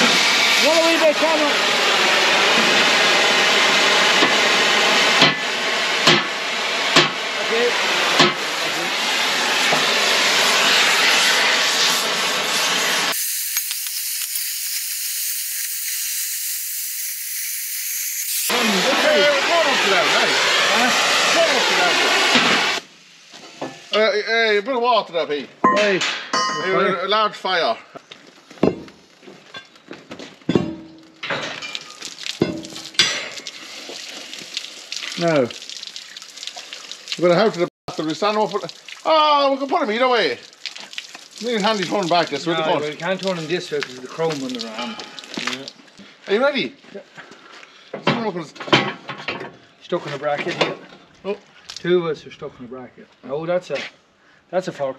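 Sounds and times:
loud steady hiss: 0.0 - 24.6.

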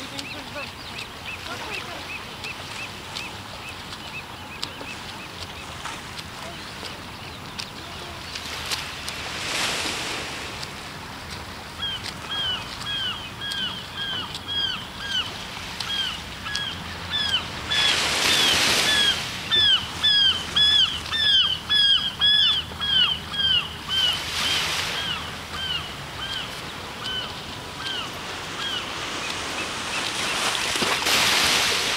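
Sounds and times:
small waves breaking on sand: 0.0 - 31.9
bird calling: 11.7 - 30.8.

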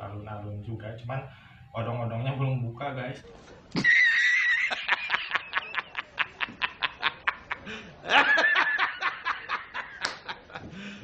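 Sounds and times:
man laughing loudly: 3.8 - 10.7.

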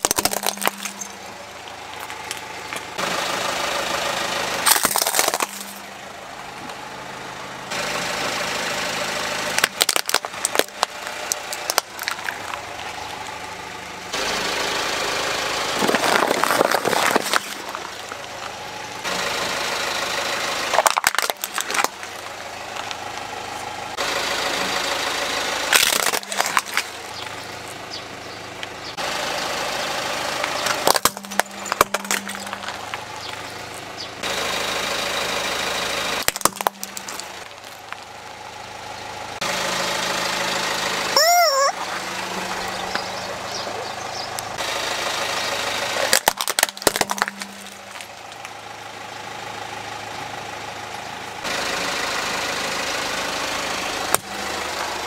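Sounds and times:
plastic toys cracking under tyre: 0.0 - 1.2, 4.6 - 5.8, 9.5 - 13.3, 15.8 - 18.6, 20.7 - 23.0, 25.7 - 27.2, 30.6 - 33.4, 36.2 - 38.1, 46.0 - 48.6
car engine idling: 0.0 - 55.0.

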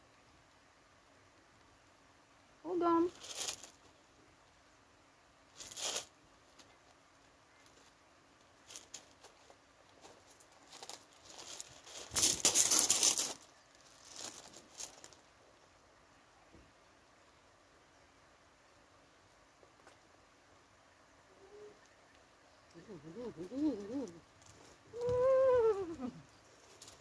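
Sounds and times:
fur rustling against microphone: 2.8 - 4.0, 5.5 - 6.2, 8.6 - 15.3.

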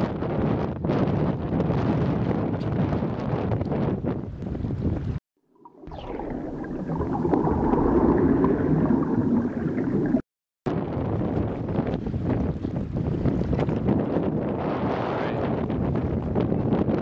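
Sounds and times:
wind buffeting microphone: 0.0 - 17.0
churning watery swell: 5.5 - 10.3.

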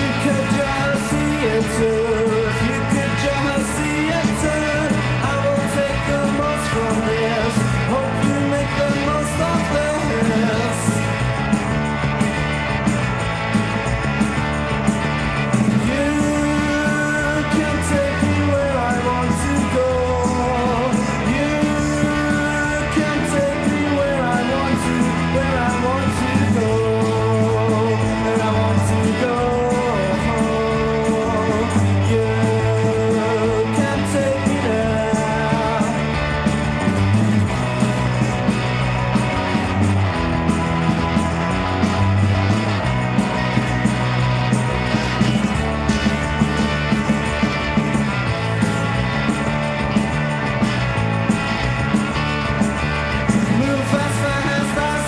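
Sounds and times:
man singing: 0.0 - 11.2, 15.8 - 36.5, 53.4 - 55.0
rock band playing: 0.0 - 55.0.

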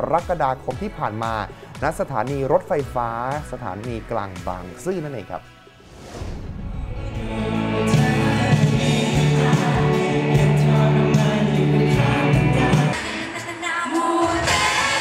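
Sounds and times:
drums: 0.0 - 5.0, 5.8 - 15.0
sung vocals: 5.4 - 15.0
heavy sustained bass: 6.4 - 12.9
electric guitar: 7.0 - 13.2
live pop band playing: 7.0 - 13.5.

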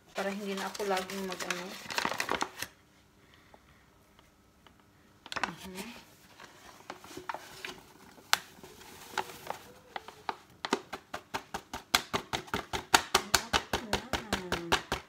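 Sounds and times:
flour shaken from a paper bag: 0.1 - 2.3
paper bag crackling: 0.1 - 2.7, 5.3 - 11.0.

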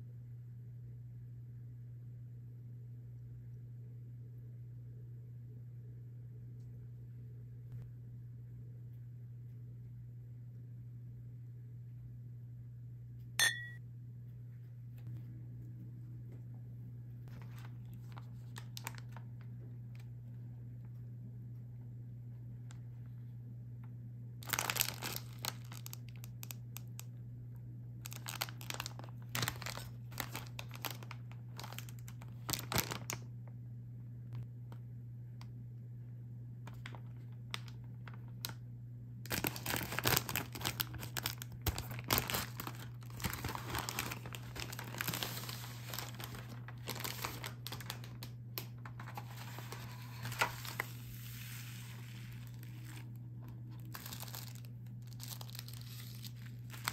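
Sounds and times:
steady low hum: 0.0 - 56.9
plastic tearing and rustling: 17.3 - 19.3, 24.4 - 27.1, 28.0 - 33.2, 39.3 - 56.9
plastic packaging crinkling: 17.3 - 19.4, 24.4 - 27.1, 28.0 - 33.2, 36.7 - 38.6, 39.3 - 56.9.

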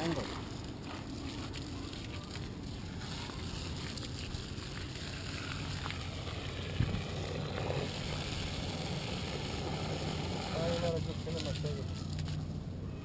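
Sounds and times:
garden hose spraying water: 0.0 - 12.7
wind rumble on microphone: 6.0 - 8.9.

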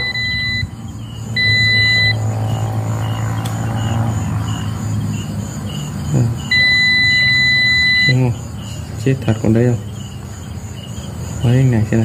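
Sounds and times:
multimeter continuity beep: 0.0 - 2.3, 6.4 - 8.4
low steady hum: 0.0 - 4.8.

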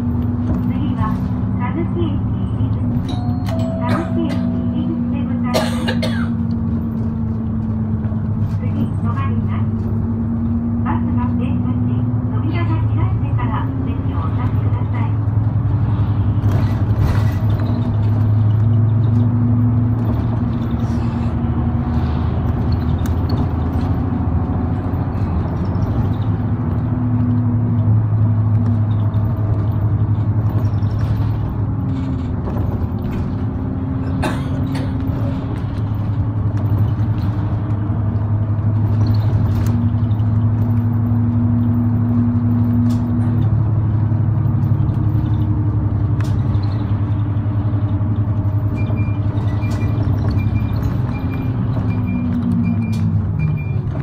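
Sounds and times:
bus engine drone: 0.0 - 54.0
road noise: 0.0 - 54.0
sharp clicks and rattles: 21.9 - 54.0.

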